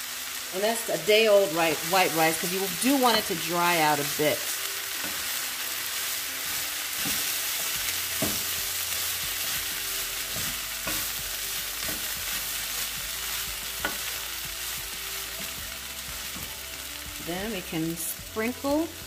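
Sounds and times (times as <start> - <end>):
rice sizzling in a pan: 0.0 - 19.0
spatula knocking and scraping pan: 6.5 - 8.7, 10.3 - 12.5, 13.7 - 14.2.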